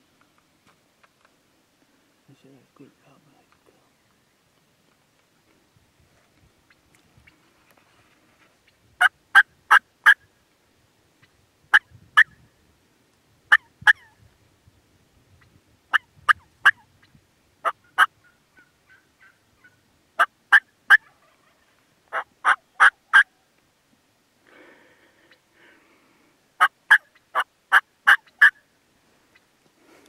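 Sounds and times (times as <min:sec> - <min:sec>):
turkey yelping: 0:13.5 - 0:14.1, 0:17.6 - 0:23.4, 0:26.6 - 0:28.6.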